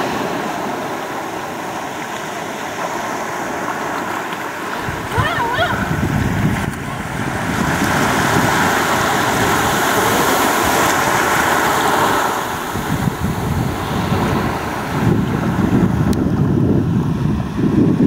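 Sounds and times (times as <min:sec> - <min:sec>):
small waves washing on beach: 0:00.0 - 0:18.0
wind buffeting microphone: 0:04.5 - 0:18.0.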